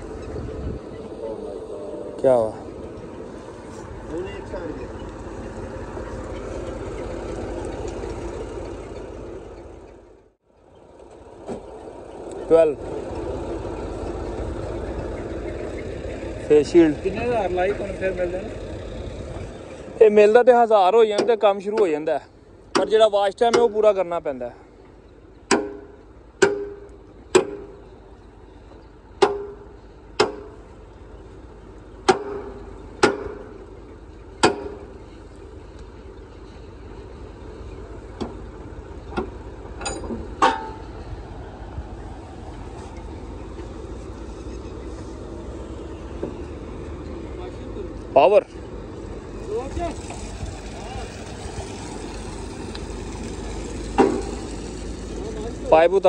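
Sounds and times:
truck engine rumbling: 0.0s - 56.0s
hammer clanging on metal pipe: 25.5s - 27.7s.

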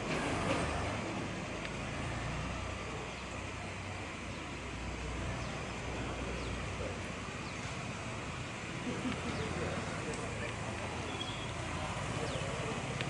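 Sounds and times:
distant road traffic rumble: 0.0s - 13.0s
faint high chirps: 11.0s - 11.7s.

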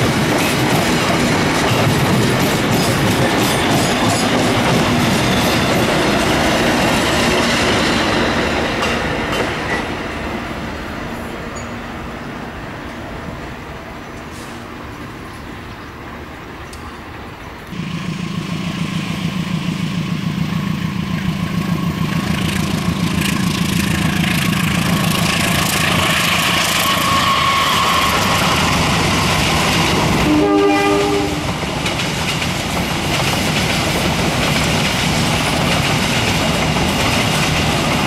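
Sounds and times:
train wheels on rail: 0.0s - 38.0s
locomotive engine: 16.3s - 38.0s
locomotive horn blast: 26.7s - 28.4s, 30.2s - 31.5s.

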